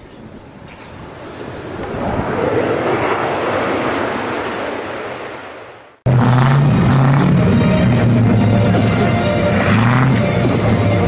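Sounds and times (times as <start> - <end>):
aircraft flyby: 0.2 - 11.0
music: 6.1 - 11.0.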